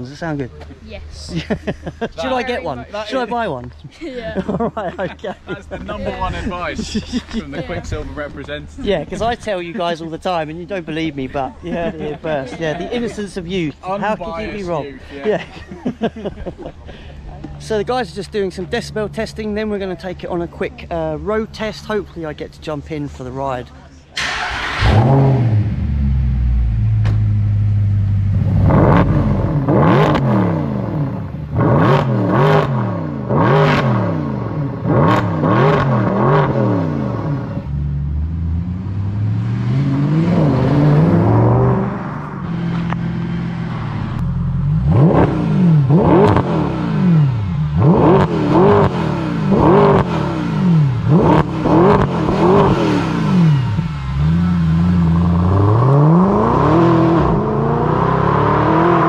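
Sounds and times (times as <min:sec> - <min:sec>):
car engine revving: 0:24.2 - 0:59.0.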